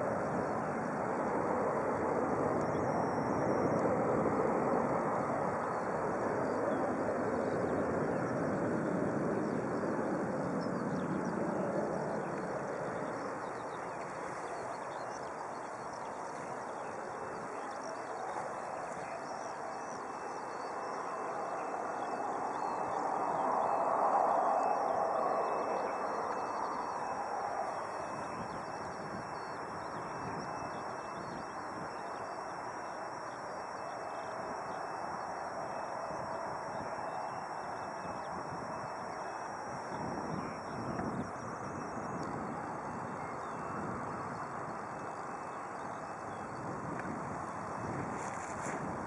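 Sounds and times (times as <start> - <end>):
jet engines roaring: 0.0 - 31.1.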